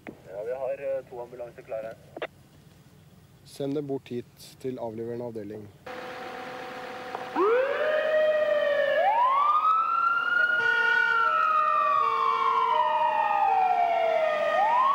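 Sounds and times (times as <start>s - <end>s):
ambulance siren wailing: 5.9s - 14.9s
two-note siren tone: 5.9s - 14.9s.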